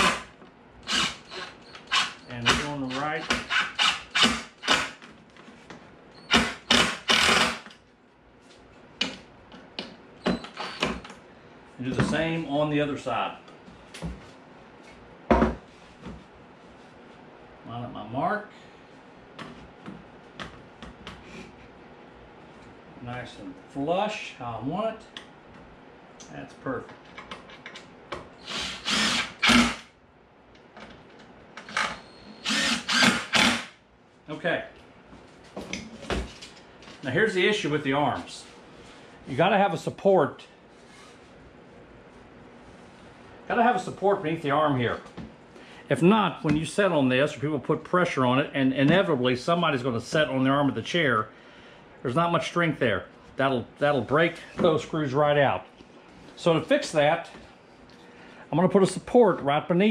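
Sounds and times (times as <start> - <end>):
cordless drill driving screws: 0.0 - 5.0, 6.2 - 7.7, 10.3 - 11.0, 28.4 - 29.9, 31.6 - 33.8.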